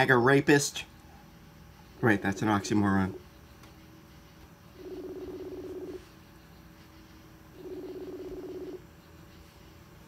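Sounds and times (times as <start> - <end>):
trilling phone ring tone: 4.8 - 6.0, 7.6 - 8.8.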